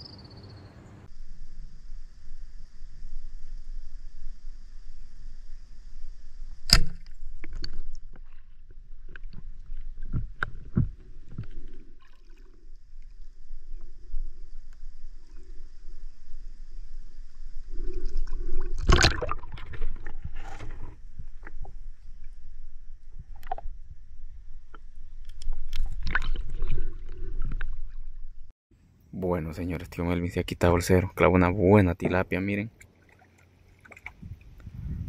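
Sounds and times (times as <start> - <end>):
water splashing in stream: 6.6 - 14.2, 17.6 - 22.4, 25.2 - 28.0, 32.7 - 34.6.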